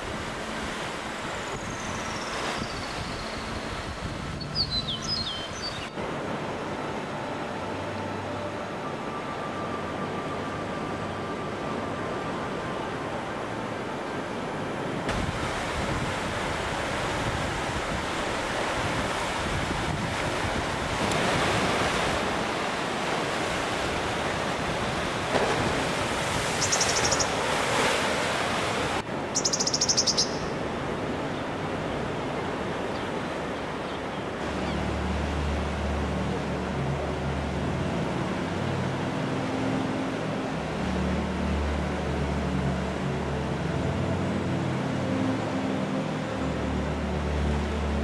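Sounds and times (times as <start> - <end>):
wind on microphone: 1.4 - 5.6, 15.0 - 29.2
sea waves on rocky shore: 14.2 - 29.3.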